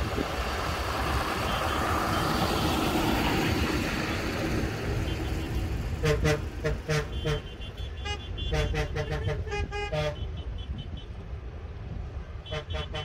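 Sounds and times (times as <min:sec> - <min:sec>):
low engine rumble: 0:00.0 - 0:10.3
tractor horns tooting: 0:01.3 - 0:03.2, 0:04.9 - 0:11.3, 0:12.4 - 0:13.0.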